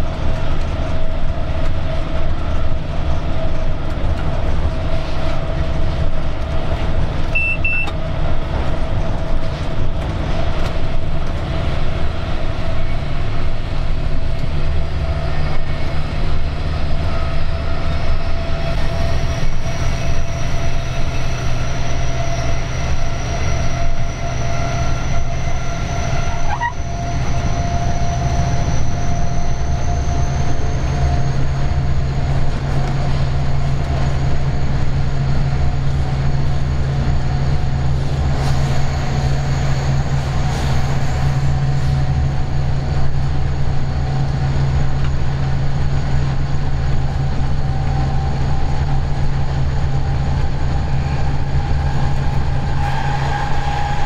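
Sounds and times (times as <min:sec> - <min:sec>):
locomotive engine drone: 0:00.0 - 0:54.0
short beep: 0:07.3 - 0:08.0.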